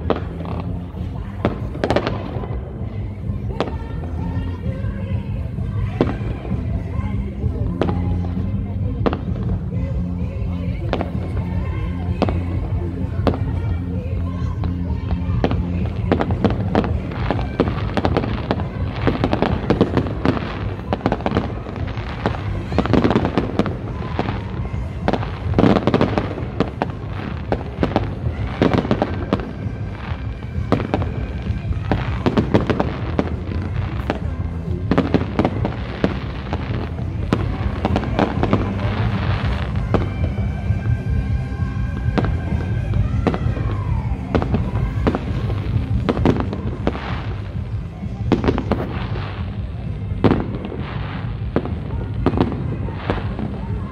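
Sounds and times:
fireworks bangs and crackling: 0:00.0 - 0:53.9
whistling fireworks: 0:00.0 - 0:53.9.

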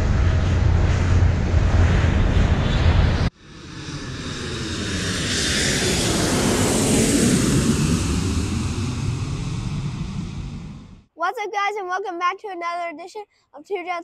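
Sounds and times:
jet airliner passing by: 0:00.0 - 0:11.1.

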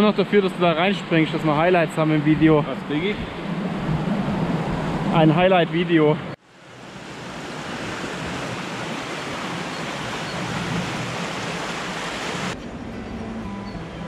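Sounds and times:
river rushing over stones: 0:06.5 - 0:12.6.

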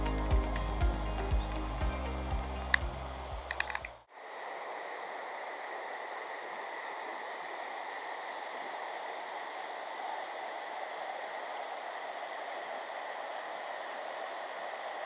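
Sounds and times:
steady high hum: 0:00.0 - 0:15.0
rushing hiss: 0:03.3 - 0:15.0.

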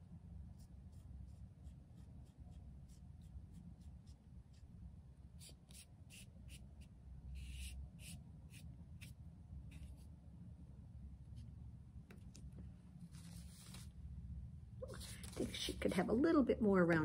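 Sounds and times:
low room hum: 0:00.0 - 0:17.0
foam brush strokes on paper: 0:13.1 - 0:13.9.

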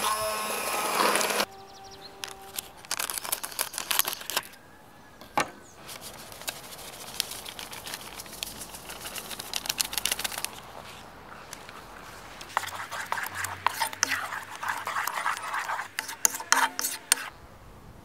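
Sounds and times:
paper sachet crinkling: 0:02.2 - 0:04.6, 0:05.8 - 0:17.3
scissors snipping paper: 0:02.2 - 0:04.6, 0:05.8 - 0:17.3.

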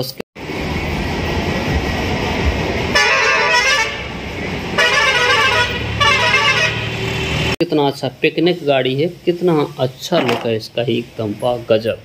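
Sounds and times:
street traffic: 0:00.0 - 0:12.0
bus engine rumble: 0:00.4 - 0:07.6
bus horn blasts: 0:02.9 - 0:07.4.

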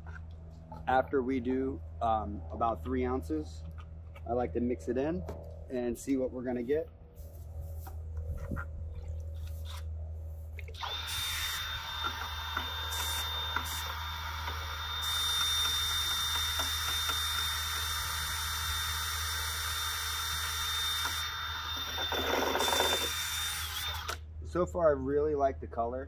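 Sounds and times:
cordless drill whining: 0:10.8 - 0:24.2.

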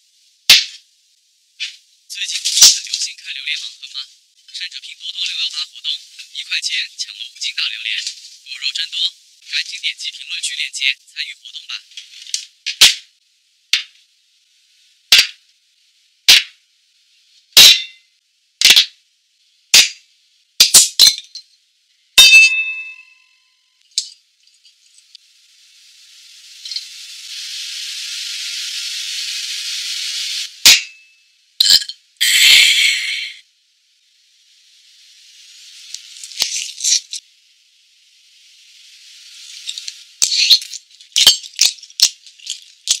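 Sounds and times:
glass clinking: 0:17.6 - 0:18.0, 0:22.2 - 0:23.3, 0:31.6 - 0:32.0
shaker-like rattling: 0:35.4 - 0:37.2, 0:38.4 - 0:43.0.

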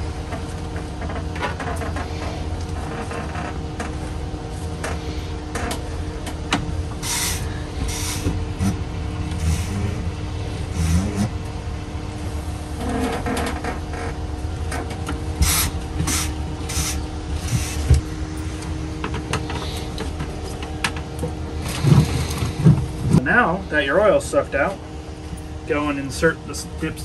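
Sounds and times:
low machine hum: 0:00.0 - 0:27.0
pad rubbing and rustling on hose: 0:15.4 - 0:18.2.

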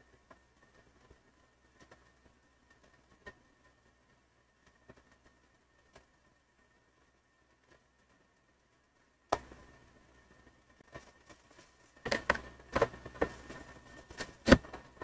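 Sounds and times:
handling of computer: 0:10.8 - 0:15.0.

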